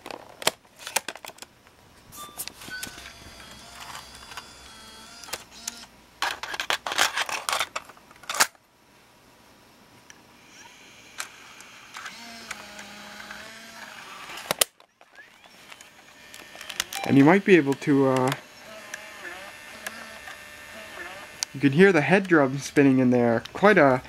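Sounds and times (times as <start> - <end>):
plastic clicks and rattles: 0.0 - 1.5, 5.2 - 8.6, 14.4 - 17.1.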